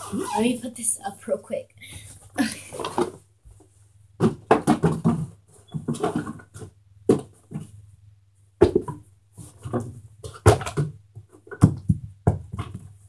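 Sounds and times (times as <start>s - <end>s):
knocks and thumps of handling: 2.7s - 7.8s, 8.6s - 13.0s.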